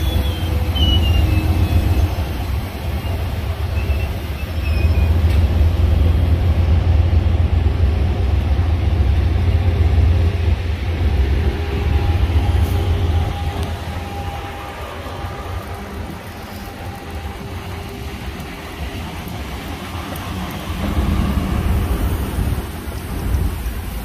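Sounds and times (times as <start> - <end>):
wheel squeals: 0.0 - 2.2, 3.0 - 5.2
train rumbling by: 0.0 - 24.0.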